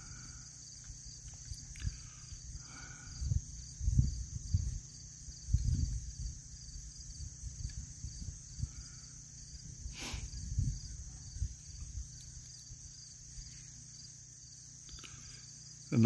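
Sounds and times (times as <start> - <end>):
insects chirping: 0.0 - 16.0
low rumbles on microphone: 1.6 - 8.9, 9.5 - 12.9.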